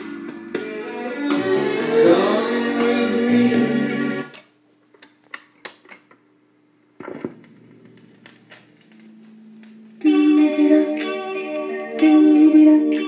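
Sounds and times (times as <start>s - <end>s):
record music playing: 0.0s - 4.3s, 7.0s - 13.0s.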